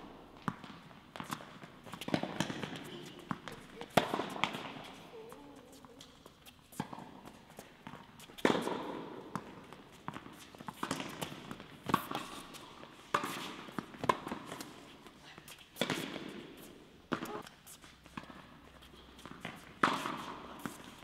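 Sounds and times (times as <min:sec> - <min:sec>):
tennis ball bounces: 0:00.4 - 0:14.8, 0:17.1 - 0:17.5, 0:19.2 - 0:21.0
tennis racket strikes: 0:19.4 - 0:21.0.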